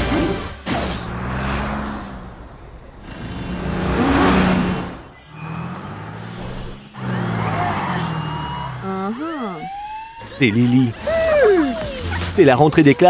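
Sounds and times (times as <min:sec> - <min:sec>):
cartoon truck engine hum: 0:00.0 - 0:12.3
truck whoosh passing by: 0:00.3 - 0:08.8.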